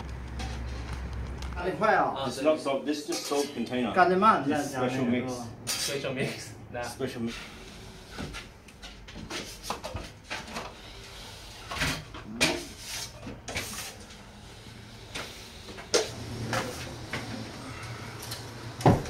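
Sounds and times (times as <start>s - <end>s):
scraping sounds: 0.0s - 1.6s, 7.2s - 18.5s.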